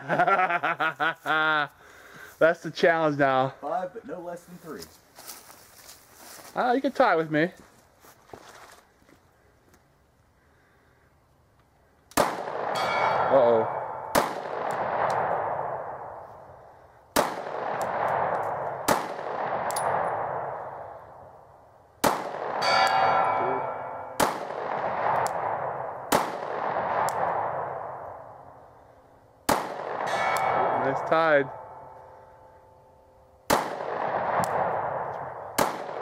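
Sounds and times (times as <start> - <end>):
pistol shots: 12.1 - 16.2, 17.1 - 20.6, 22.0 - 28.3, 29.4 - 32.6, 33.4 - 36.0
long echo of gunshots: 12.1 - 21.4, 22.0 - 28.7, 29.4 - 32.7, 33.4 - 36.0.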